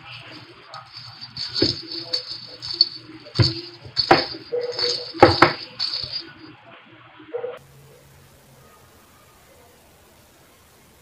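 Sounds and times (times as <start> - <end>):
plastic balls knocking together: 0.0 - 6.4
cat toy balls jingling: 0.0 - 6.5.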